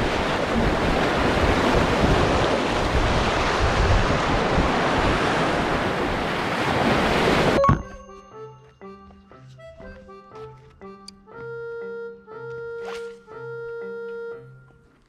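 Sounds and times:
wind buffeting microphone: 0:00.0 - 0:07.6
sea surf splashing over concrete: 0:00.0 - 0:07.7.

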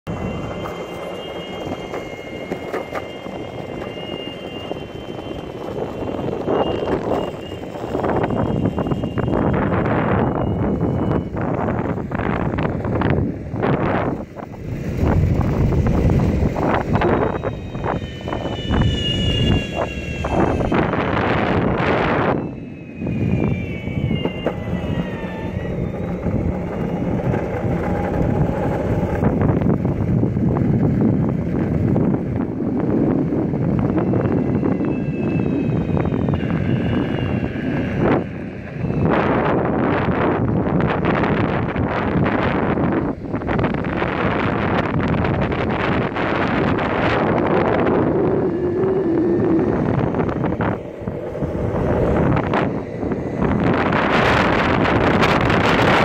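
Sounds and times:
wind rumble: 0:00.0 - 0:56.0
faint steady high tones: 0:00.1 - 0:13.5, 0:15.8 - 0:29.7
skateboard wheels rolling on asphalt: 0:00.1 - 0:56.0.

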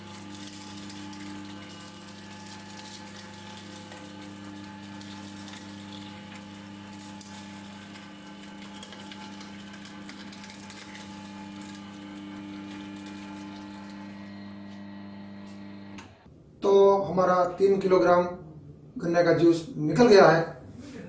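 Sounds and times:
sugarcane crackling: 0:00.0 - 0:14.8
juice machine motor hum: 0:00.0 - 0:16.3.

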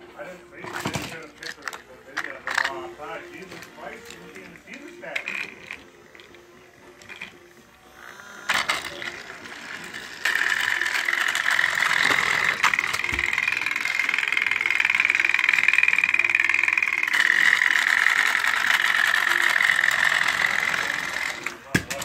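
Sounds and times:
toy train motor whirring: 0:00.7 - 0:22.0
handling clicks and thump: 0:21.7 - 0:22.0.

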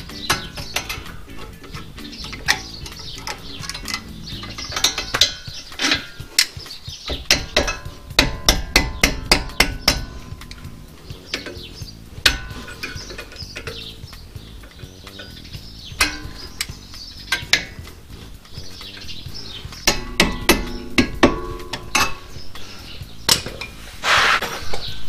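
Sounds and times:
metal tool taps: 0:07.1 - 0:10.7, 0:19.8 - 0:22.2.

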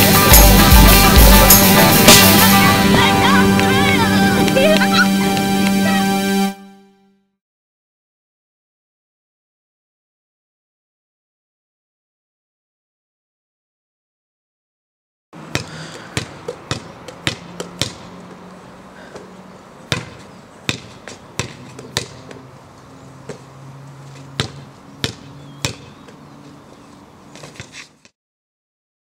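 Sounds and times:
basketball bouncing on pavement: 0:15.4 - 0:18.4, 0:19.0 - 0:22.4, 0:23.2 - 0:26.3, 0:27.3 - 0:28.1.

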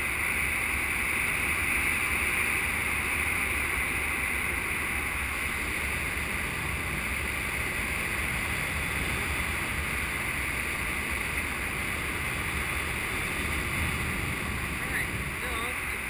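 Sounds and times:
wind buffeting microphone: 0:05.6 - 0:16.0.

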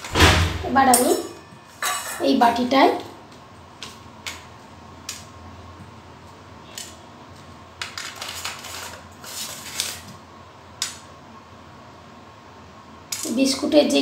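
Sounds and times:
metal clinking on plate: 0:00.9 - 0:02.3.

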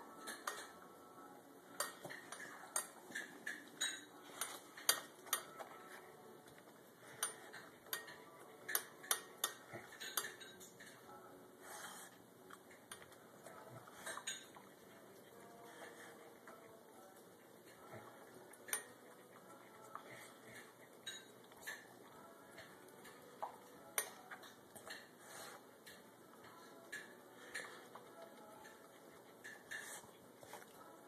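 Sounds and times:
dog eating from metal bowl: 0:01.7 - 0:11.1, 0:12.0 - 0:31.0.

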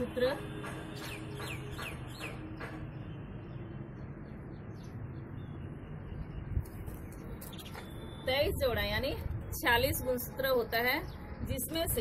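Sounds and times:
bird chirping: 0:00.9 - 0:08.2.

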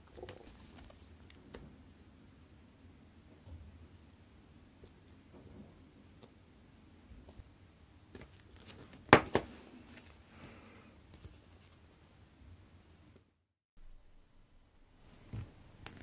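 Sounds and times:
small handling sounds: 0:00.0 - 0:01.7, 0:08.1 - 0:12.2.

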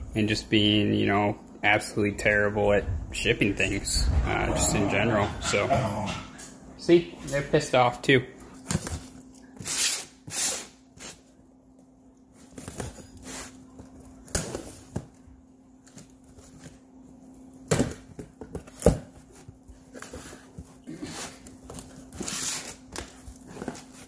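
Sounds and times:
faint low hum: 0:00.0 - 0:09.5.

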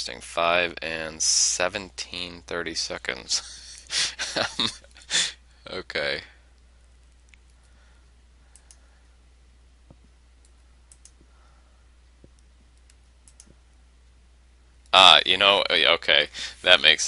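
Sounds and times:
low electrical hum: 0:00.0 - 0:17.0
computer mouse clicks: 0:08.5 - 0:08.8, 0:09.9 - 0:11.3, 0:12.2 - 0:13.6.

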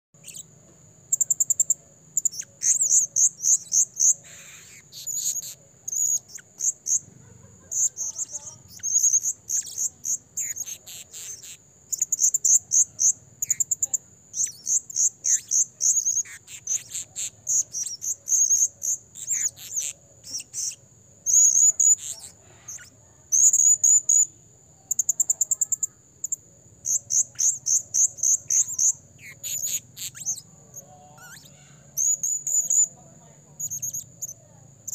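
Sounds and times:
parrot high-pitched shrill chips: 0:31.2 - 0:32.8.

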